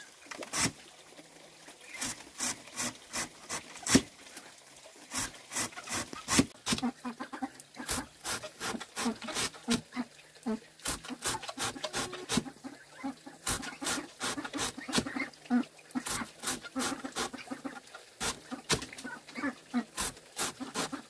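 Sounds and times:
farm animals clucking: 0:05.5 - 0:21.0.

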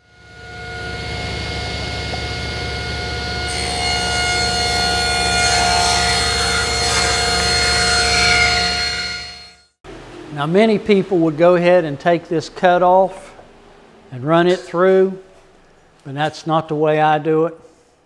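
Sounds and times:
table saw running: 0:00.0 - 0:09.8
saw blade cutting wood: 0:00.4 - 0:09.7.

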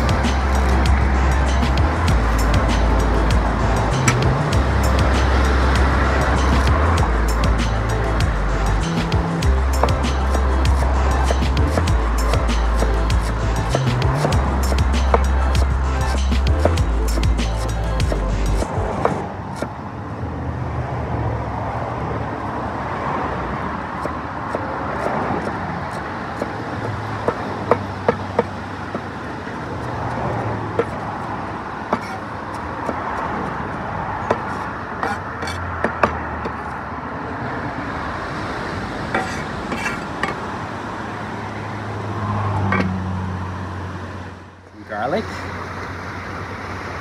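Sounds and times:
outdoor background rumble and hiss: 0:00.0 - 0:47.0.

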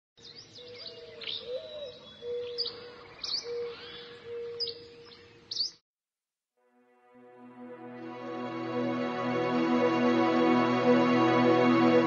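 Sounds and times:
birds chirping: 0:00.2 - 0:05.8
held wavering note: 0:06.9 - 0:12.0.

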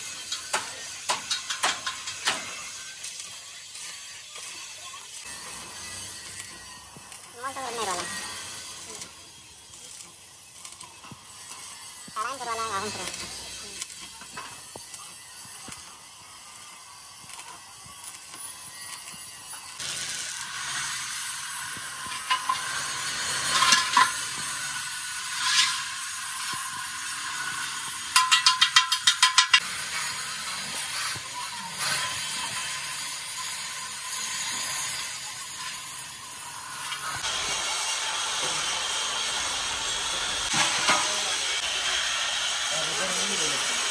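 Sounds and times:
metal knocks and scrapes: 0:22.0 - 0:24.6, 0:28.1 - 0:29.6.

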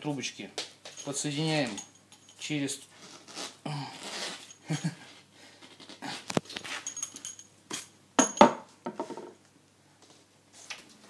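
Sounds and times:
hand handling noise: 0:00.6 - 0:09.4
man breathing and humming: 0:03.6 - 0:06.4.

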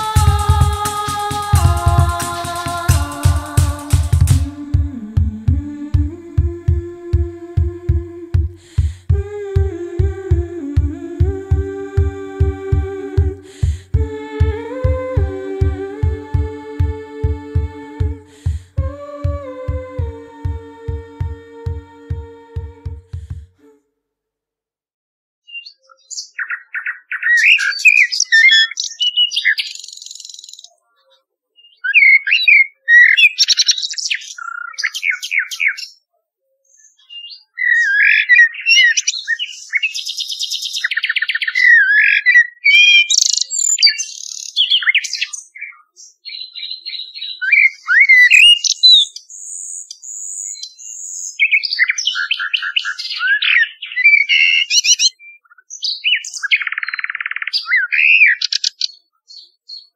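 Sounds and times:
birdsong whistles and trills: 0:25.5 - 0:30.8, 0:31.6 - 0:36.0, 0:36.6 - 0:59.9.

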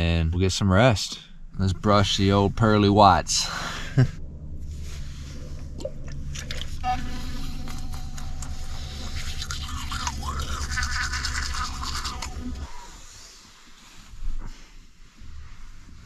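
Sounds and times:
low hum: 0:00.0 - 0:16.0
toothbrush scrubbing teeth: 0:08.1 - 0:12.6.

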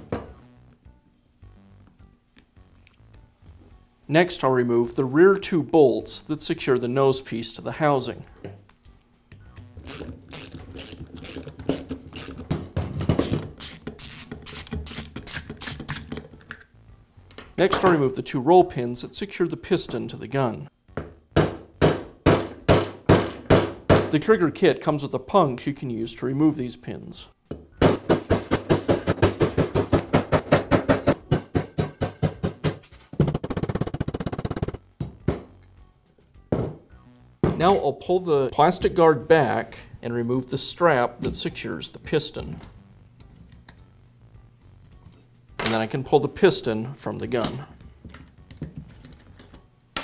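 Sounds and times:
socket ratchet clicking: 0:09.6 - 0:12.6, 0:13.2 - 0:16.3.

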